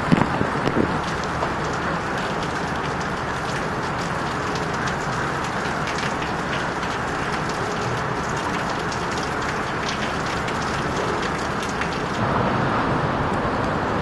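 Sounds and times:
hurricane wind rushing: 0.0 - 2.3
crackle of rain hits: 0.0 - 12.2.

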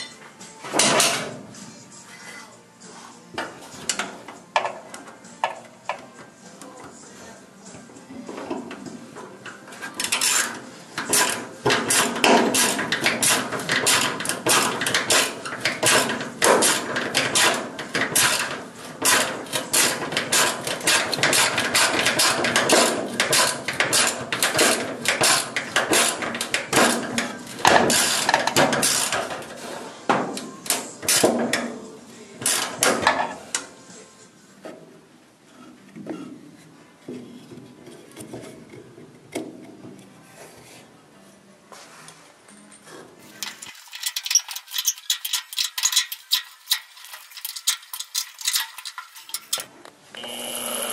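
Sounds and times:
screw driven into sheet metal: 9.9 - 29.4, 43.2 - 49.7.

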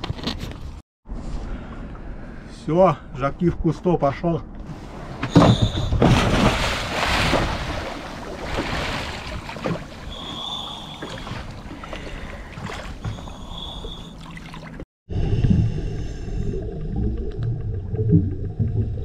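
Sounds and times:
water sloshing: 4.8 - 14.8.

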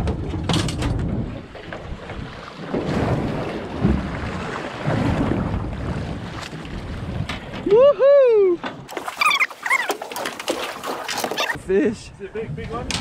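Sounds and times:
water sloshing against boat hull: 0.0 - 7.7, 8.6 - 11.8
wind buffeting microphone: 0.0 - 7.8.

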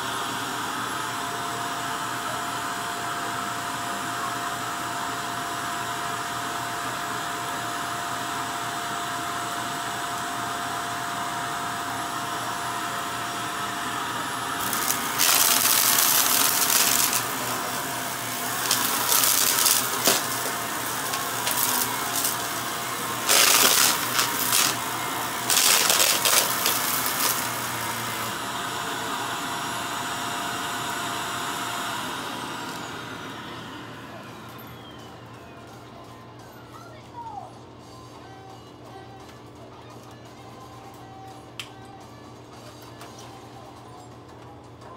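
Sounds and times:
vacuum cleaner running: 0.0 - 36.4
vacuum rattling sucking debris: 14.6 - 27.7.

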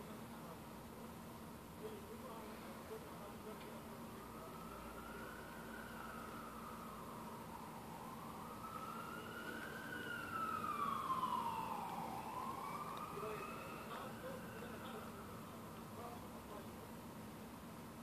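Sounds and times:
emergency vehicle siren wailing: 3.8 - 15.8.

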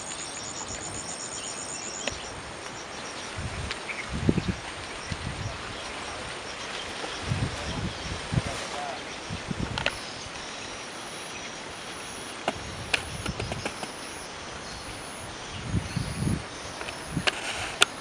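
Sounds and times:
steady outdoor hiss: 0.0 - 18.0
sharp clicks: 12.2 - 14.2.

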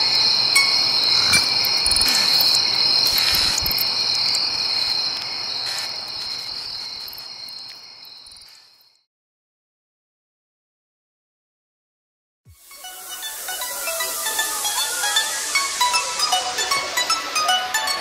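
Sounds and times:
high steady chirring: 0.5 - 4.5, 12.6 - 18.0.

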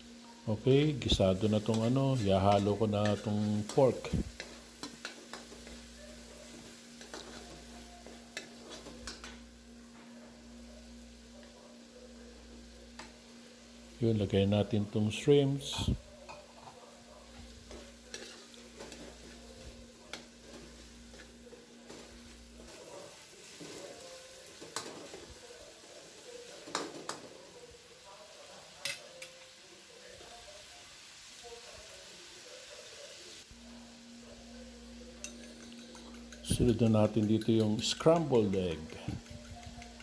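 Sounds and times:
food sizzling in a wok: 0.0 - 40.0
metal spatula scraping a pan: 1.4 - 9.1, 17.6 - 25.2.

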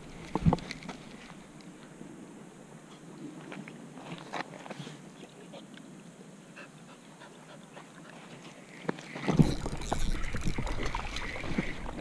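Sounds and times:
dog panting: 6.6 - 8.3
dog wading in water: 7.0 - 12.0.

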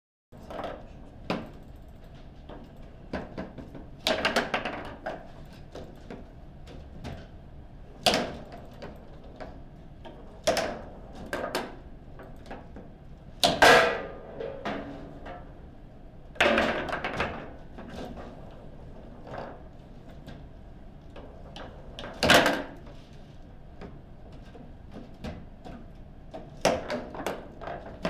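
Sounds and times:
foosball ball and rods knocking: 13.4 - 15.6, 16.4 - 17.6.

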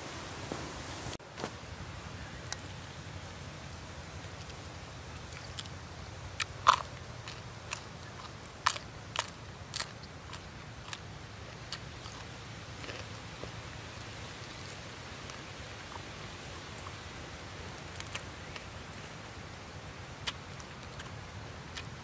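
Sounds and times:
person eating with wet smacks: 6.4 - 13.6, 20.2 - 22.0.

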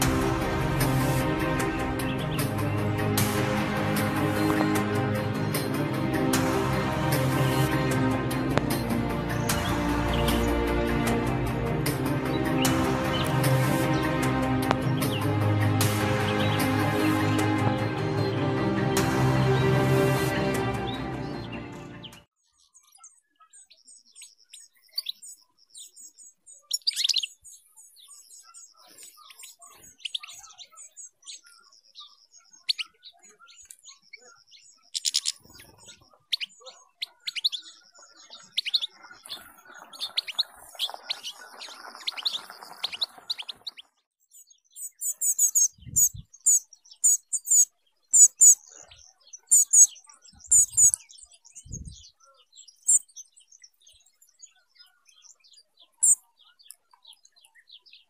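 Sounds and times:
finches calling and twittering: 0.0 - 18.4, 19.4 - 58.0
very high chirps: 44.3 - 48.7, 49.4 - 51.9, 52.7 - 53.1, 56.0 - 56.3.

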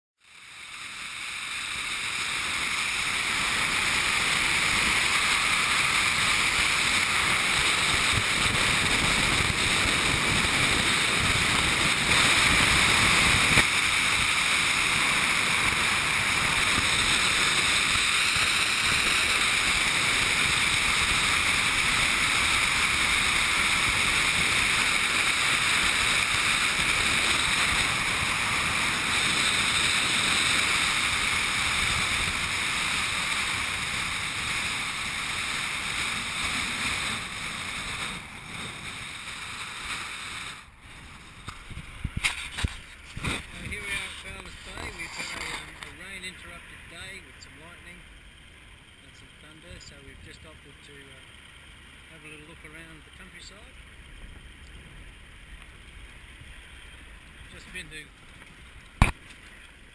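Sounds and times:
road noise: 0.2 - 59.9
wind buffeting microphone: 6.4 - 32.6, 40.8 - 45.8.

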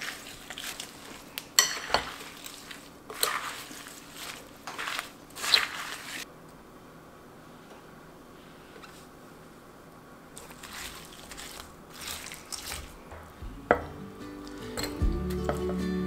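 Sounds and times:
wet ingredients being handled: 0.0 - 6.3, 10.3 - 13.5, 14.3 - 15.7
small crackles: 10.3 - 13.2
background music: 13.4 - 16.0.

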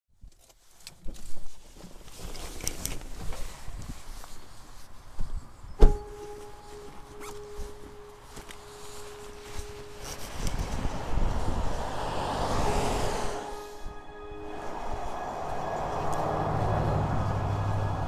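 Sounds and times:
rustling: 0.2 - 11.8
car door shutting: 5.8 - 8.6.

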